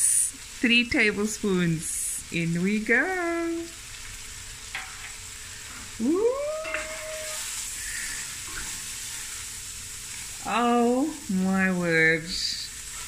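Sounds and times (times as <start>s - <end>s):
onions frying in oil: 0.0s - 13.0s
person exclaiming: 6.0s - 7.5s.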